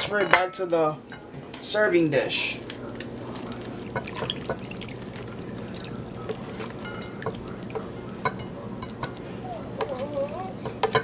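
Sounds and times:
juice dripping and pouring: 2.7s - 9.4s.

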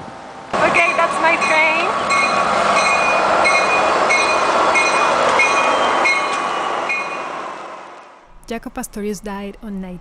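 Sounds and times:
diesel train engine and wheels rumbling: 0.0s - 10.0s
locomotive bell ringing: 0.6s - 7.4s.

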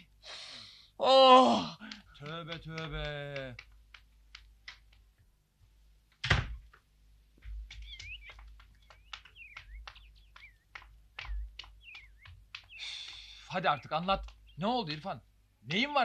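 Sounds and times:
low outdoor background: 0.0s - 16.0s
door shutting with heavy thud: 6.2s - 6.6s
birds chirping and twittering: 7.4s - 16.0s.

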